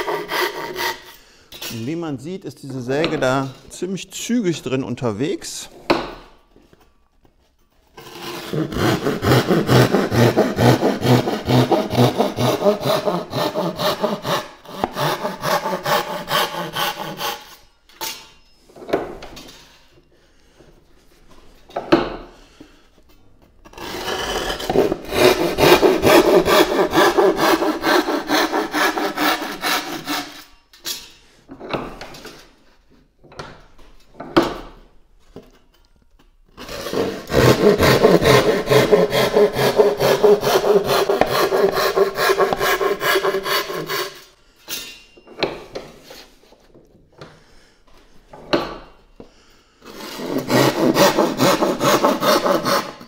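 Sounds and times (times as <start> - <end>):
hand saw cutting board: 0.0 - 1.2, 8.0 - 17.6, 23.7 - 30.6, 36.6 - 44.3, 49.8 - 53.0.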